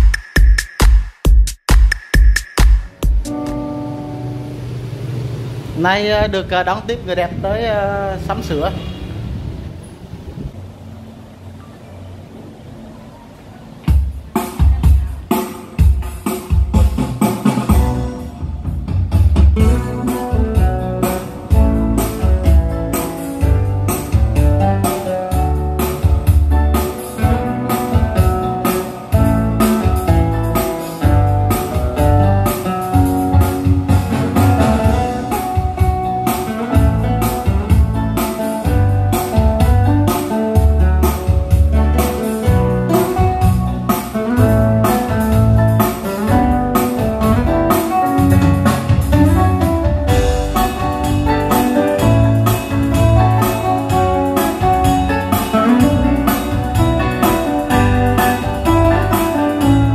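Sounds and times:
keyboard music with drum beat: 0.0s - 4.4s, 13.9s - 59.9s.

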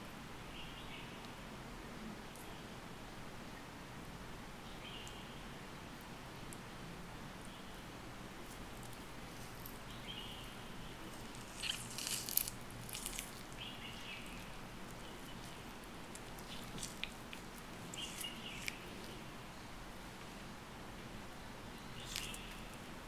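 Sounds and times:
orange segments tearing apart: 11.1s - 19.2s, 22.0s - 22.7s.

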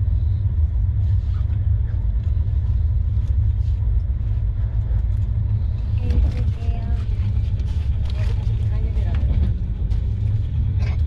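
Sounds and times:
train rumbling on track: 0.0s - 11.0s.

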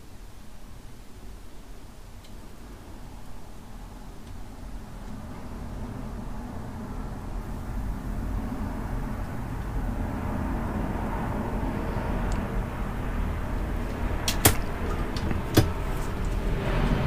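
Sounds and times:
low background rumble: 0.0s - 17.0s.

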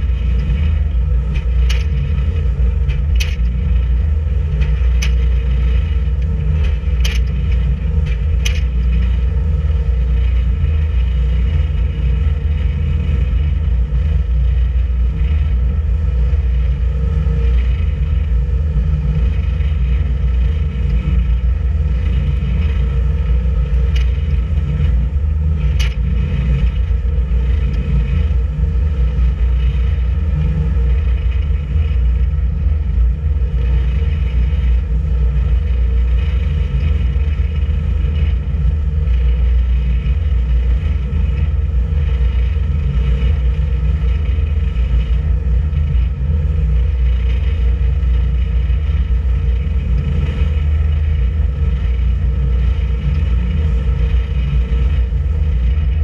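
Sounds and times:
boat engine droning: 0.0s - 56.0s.

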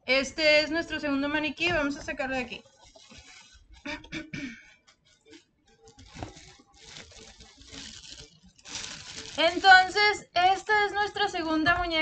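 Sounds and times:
plastic bag crinkling and rustling: 1.6s - 3.9s, 4.7s - 12.0s.

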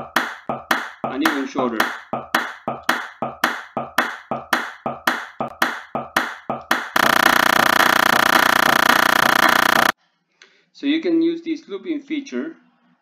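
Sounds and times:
looped hand clap: 0.2s - 7.0s
loud pitched buzz: 7.0s - 10.0s.

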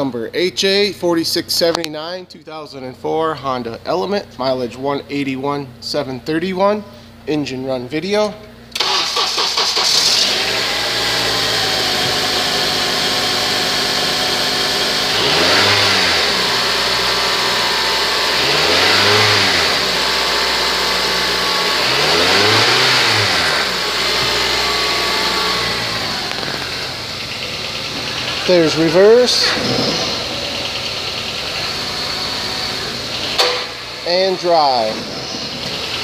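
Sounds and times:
car engine idling and revving: 8.8s - 36.0s.

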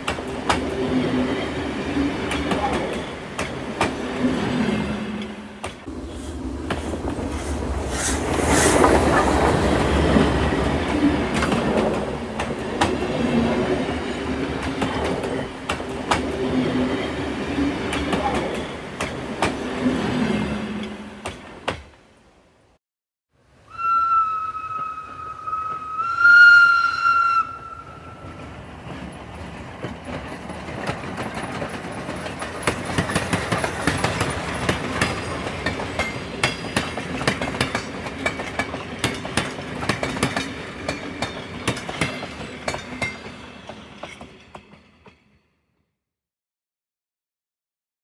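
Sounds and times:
train wheels clicking on rails: 0.0s - 20.2s, 20.8s - 22.0s, 28.3s - 45.2s
steam train whistle: 23.7s - 28.4s.

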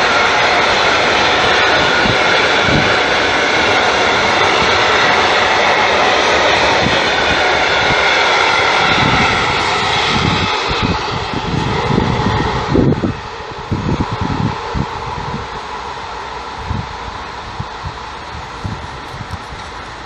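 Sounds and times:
freight wagons rolling on rails: 15.6s - 20.0s.

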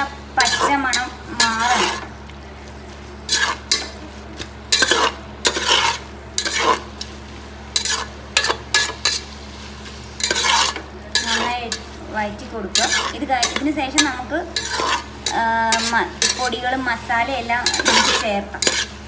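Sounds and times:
light sizzle: 0.0s - 19.0s
steady low hum: 0.0s - 19.0s
metal ladle scraping a pot: 0.4s - 2.1s, 3.2s - 4.0s, 4.7s - 9.4s, 10.1s - 12.0s, 12.6s - 16.8s, 17.5s - 19.0s.

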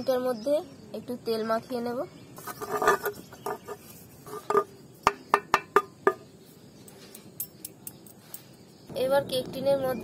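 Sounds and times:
metallic knocks on cake tin: 4.5s - 6.2s.

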